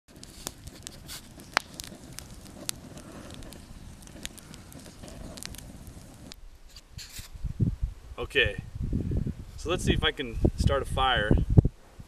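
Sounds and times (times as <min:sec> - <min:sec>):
wood fire crackling and popping: 0:00.1 - 0:07.3.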